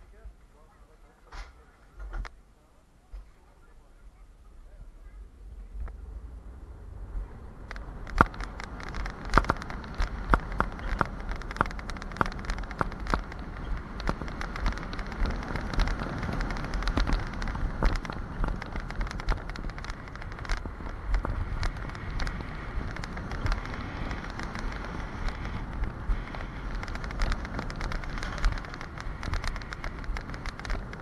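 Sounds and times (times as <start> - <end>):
coaster wheels rumbling on rails: 3.0 - 31.0
sharp clicks and rattles: 7.4 - 31.0.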